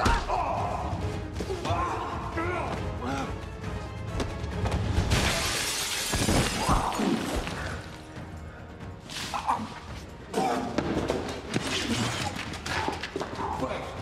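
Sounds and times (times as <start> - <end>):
film score music: 0.0 - 14.0
thuds and crashes: 4.9 - 6.9
glass shattering: 5.1 - 7.4.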